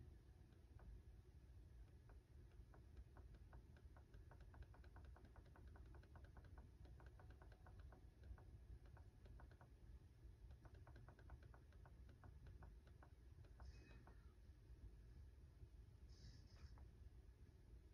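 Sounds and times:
low steady hum: 0.0s - 17.9s.

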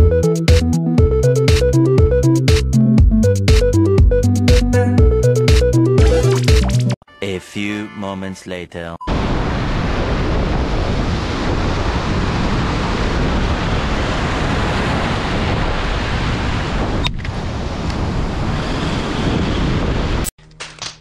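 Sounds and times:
wind buffeting microphone: 9.2s - 20.3s.

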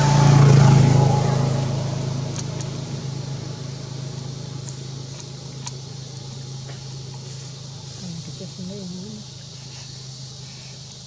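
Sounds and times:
low motor engine drone: 0.0s - 11.0s
faint ticks: 4.2s - 5.8s.

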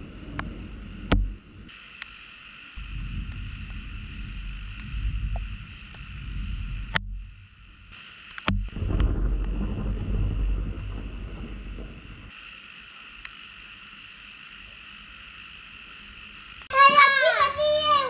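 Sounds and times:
muffled thunder rumble: 0.0s - 1.7s, 2.8s - 12.4s.

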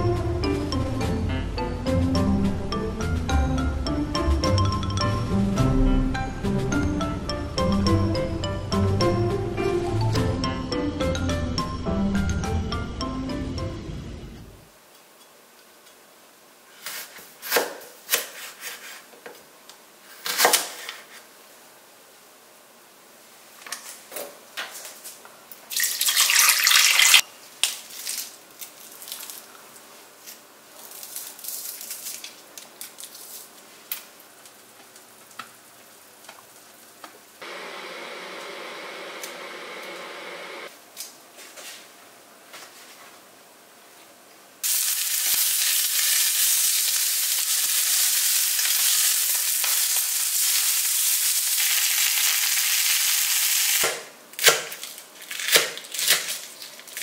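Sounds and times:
chicken sizzling in oil: 25.7s - 27.2s, 44.6s - 53.9s.

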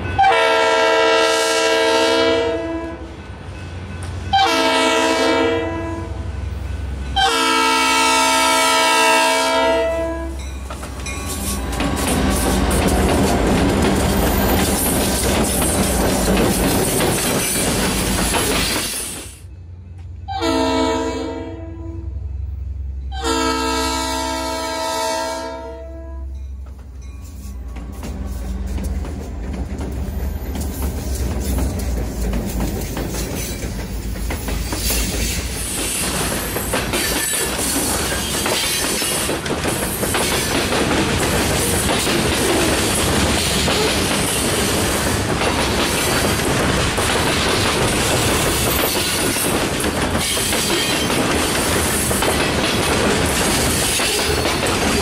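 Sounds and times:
locomotive horn: 0.0s - 3.2s, 4.3s - 6.2s, 7.2s - 10.4s, 20.3s - 22.2s, 23.1s - 26.4s
locomotive rumbling past: 0.0s - 55.0s
train wheels clattering on rails: 10.3s - 20.2s, 26.5s - 55.0s.

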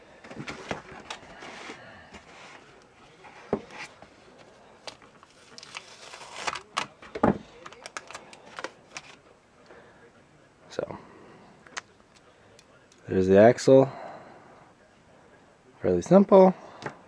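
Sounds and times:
plastic wrap crinkling: 7.6s - 9.2s.

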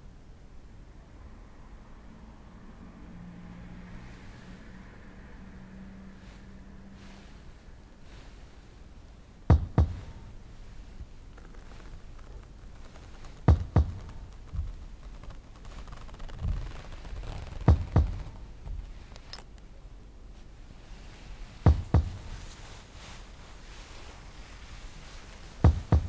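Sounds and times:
short low thuds in pairs: 9.5s - 19.1s, 21.4s - 23.8s, 24.4s - 26.0s
soft thumps: 9.5s - 19.4s, 21.0s - 26.0s.

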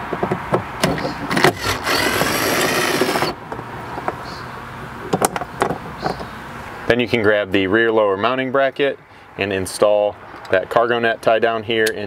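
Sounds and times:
cordless screwdriver running: 1.3s - 3.4s.

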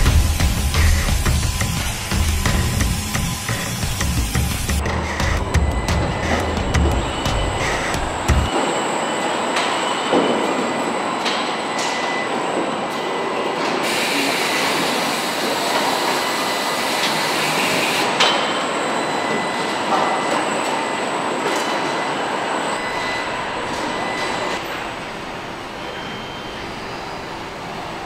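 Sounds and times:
machinery din: 0.0s - 8.8s.

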